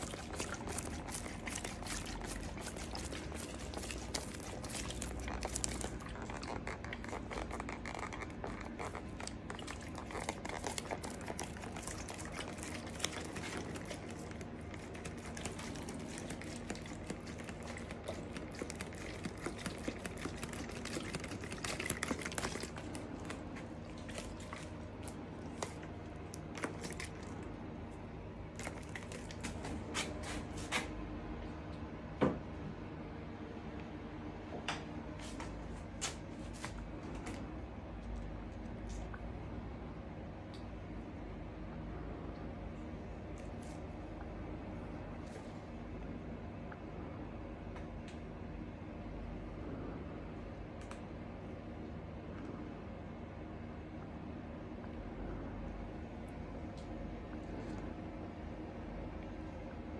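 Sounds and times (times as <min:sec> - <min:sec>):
squeeze bottle dispensing resin: 0:00.0 - 0:27.5
steady low hum: 0:00.0 - 0:59.9.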